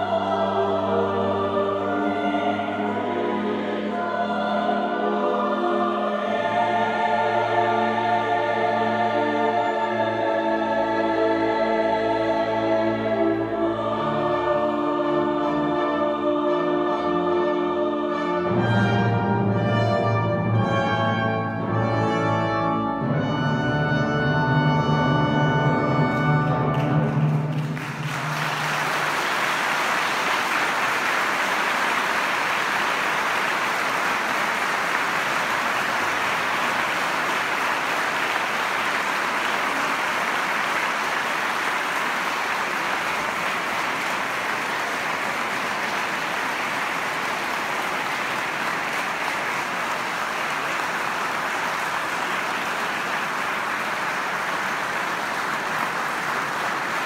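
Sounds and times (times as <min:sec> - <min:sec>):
audience applauding: 0:26.7 - 0:57.0.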